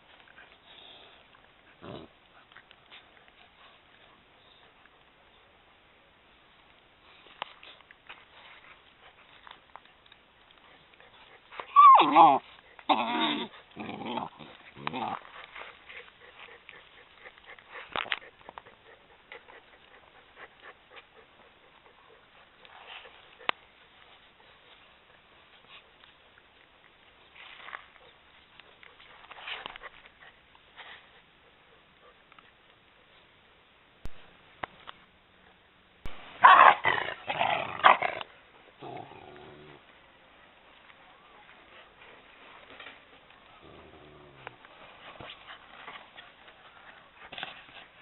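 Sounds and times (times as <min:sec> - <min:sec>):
dog growling: 0:01.7 - 0:02.2, 0:11.8 - 0:15.2, 0:36.7 - 0:39.8, 0:43.6 - 0:44.6
puppies scuffling on grass: 0:06.2 - 0:35.1, 0:36.0 - 0:48.0
dogs barking: 0:36.4 - 0:38.1.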